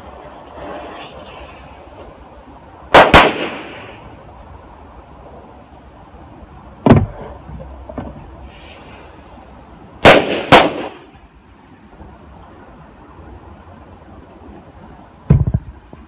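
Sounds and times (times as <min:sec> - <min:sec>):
firecrackers exploding: 0:02.9 - 0:04.0, 0:10.0 - 0:11.1.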